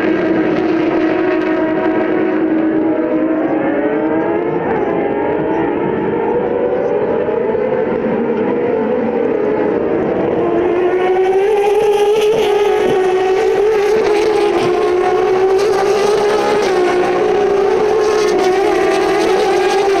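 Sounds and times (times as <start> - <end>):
race cars passing at full throttle: 0.0 - 20.0.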